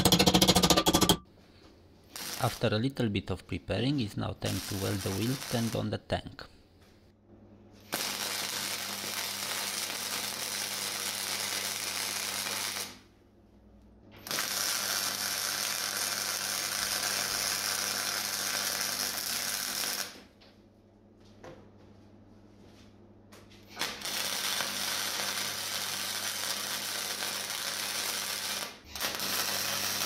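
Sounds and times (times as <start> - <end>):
welding arc crackling: 2.1 - 2.8, 4.4 - 5.9, 7.9 - 13.0, 14.2 - 20.2, 23.7 - 30.0.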